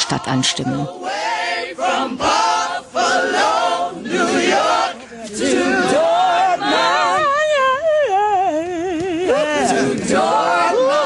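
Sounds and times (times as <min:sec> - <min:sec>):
gospel choir singing: 0:00.3 - 0:07.4, 0:09.3 - 0:11.0.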